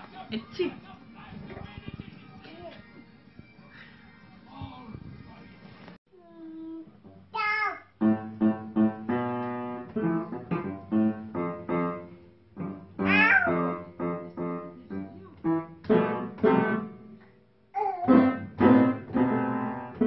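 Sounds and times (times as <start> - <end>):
piano keys banged: 8.0 - 17.3, 18.0 - 20.0
baby squealing: 13.0 - 13.7.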